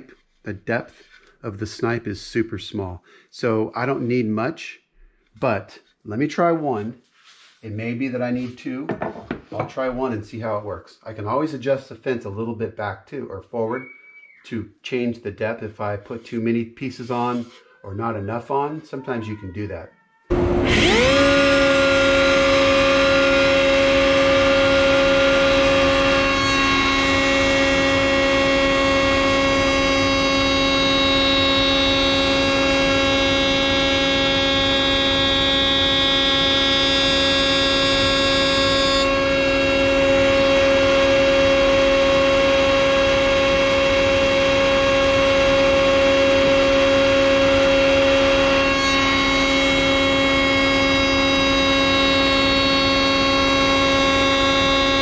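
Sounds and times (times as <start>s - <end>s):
dust collector running: 20.3s - 55.0s
router whining: 20.3s - 55.0s.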